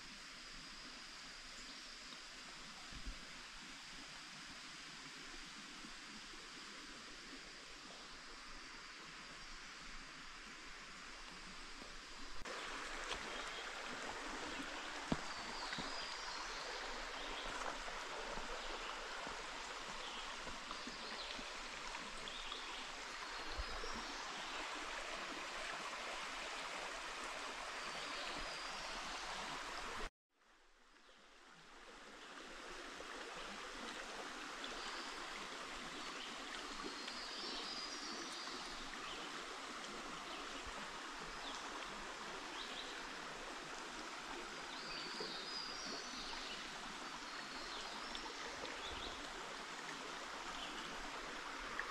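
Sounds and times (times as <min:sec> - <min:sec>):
stream flowing: 0:00.0 - 0:51.9.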